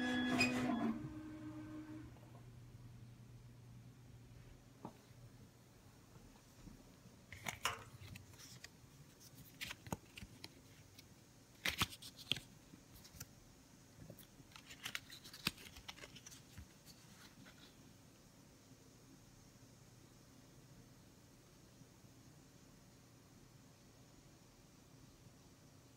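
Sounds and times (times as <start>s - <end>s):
paper crackling and clicking: 7.4s - 13.3s, 14.1s - 17.4s.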